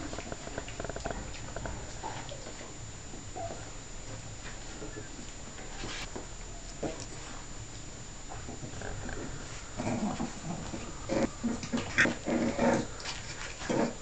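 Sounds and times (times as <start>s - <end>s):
puppies growling and yipping: 9.8s - 13.0s.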